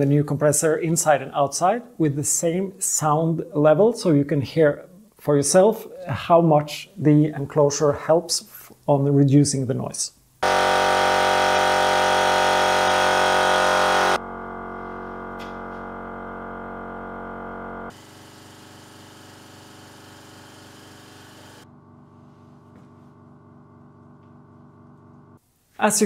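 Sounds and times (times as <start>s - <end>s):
electric air compressor running: 10.4s - 23.2s.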